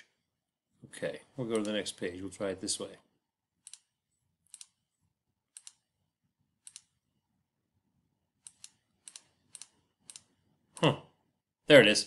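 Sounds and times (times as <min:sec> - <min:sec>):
computer mouse clicks: 0:03.6 - 0:03.9, 0:04.5 - 0:04.8, 0:05.5 - 0:05.9, 0:06.6 - 0:07.0, 0:08.4 - 0:10.9.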